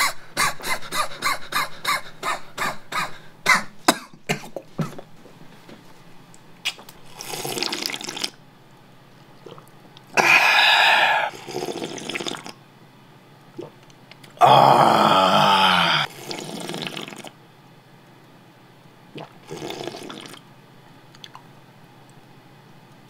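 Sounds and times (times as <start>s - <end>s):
person slurping broth: 6.7s - 8.4s, 10.2s - 12.6s, 14.5s - 17.3s, 19.2s - 20.4s.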